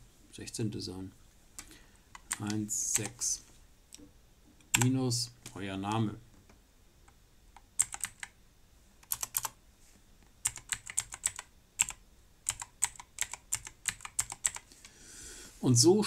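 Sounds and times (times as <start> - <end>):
typing on computer keyboard: 7.6 - 8.4, 9.0 - 9.6, 10.4 - 14.7.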